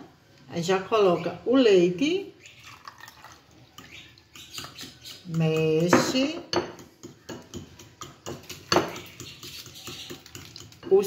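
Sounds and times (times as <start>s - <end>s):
fork clinking against glass bowl: 6.6s - 10.9s.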